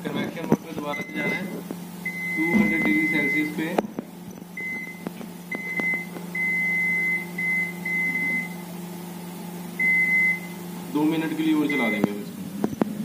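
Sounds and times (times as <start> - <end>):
steady low hum: 0.0 - 13.0
control panel beeping: 0.9 - 3.6, 4.6 - 8.6, 9.8 - 10.5, 11.6 - 12.2.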